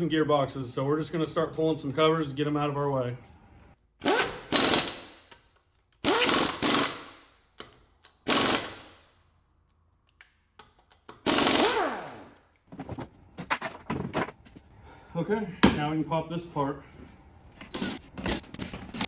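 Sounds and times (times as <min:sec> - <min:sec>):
cordless driver running in bursts: 0:08.3 - 0:08.8, 0:11.3 - 0:12.2.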